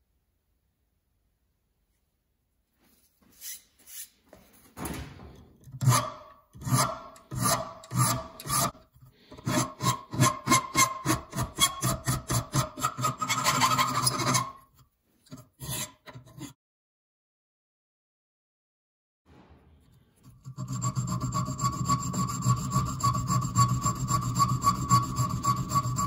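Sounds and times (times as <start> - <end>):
hand file rasping on steel: 5.8 - 16.6, 20.2 - 26.0.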